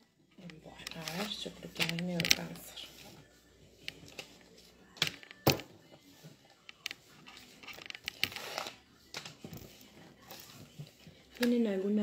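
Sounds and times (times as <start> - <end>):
rustling scrape: 0.8 - 3.4, 6.1 - 8.8.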